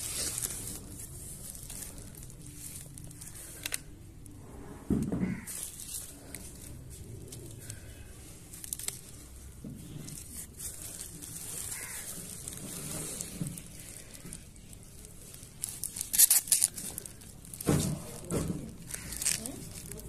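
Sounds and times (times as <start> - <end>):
plastic and bubble wrap crinkling: 0.0 - 20.0.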